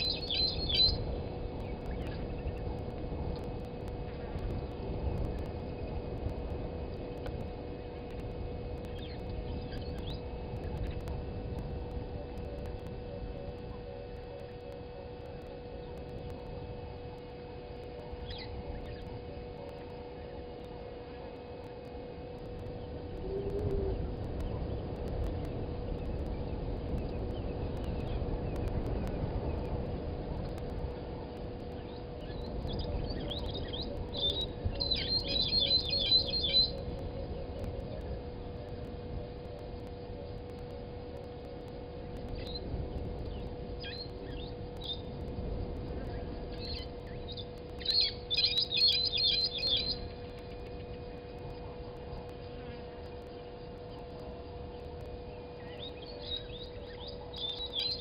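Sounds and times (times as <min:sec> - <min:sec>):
faint high bird chirps: 0:00.0 - 0:01.1, 0:31.9 - 0:37.4, 0:46.6 - 0:50.2, 0:55.6 - 0:58.0
steady low rumble: 0:00.0 - 0:58.0
thin steady hum: 0:00.0 - 0:58.0.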